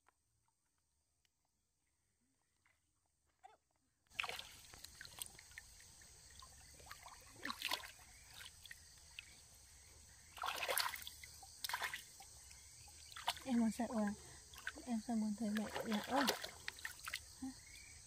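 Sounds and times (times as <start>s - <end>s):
water splashing and sloshing: 4.1s - 17.9s.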